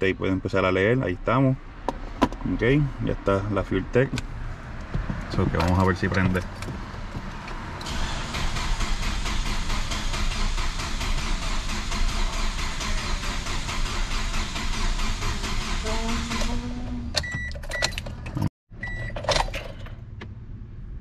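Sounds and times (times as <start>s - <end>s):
engine cranking by starter: 7.8s - 20.0s.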